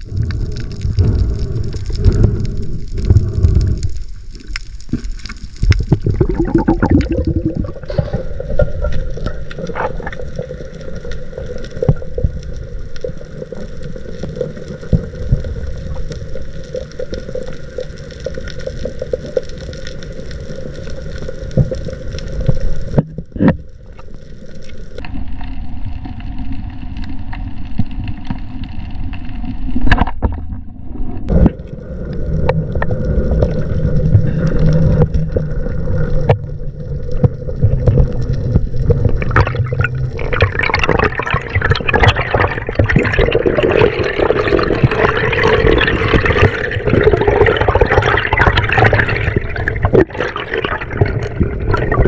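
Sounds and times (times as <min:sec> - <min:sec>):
splashing gurgling water: 0:04.4 - 0:25.0, 0:31.3 - 0:52.0.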